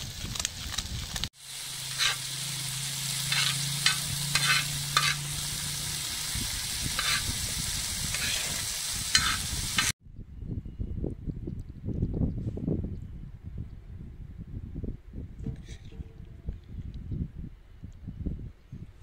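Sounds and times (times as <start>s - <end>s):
meat sizzling on a griddle: 0.0s - 10.0s
metal spoon scraping steel: 1.9s - 2.3s, 3.2s - 5.4s, 6.9s - 7.3s, 8.1s - 9.9s.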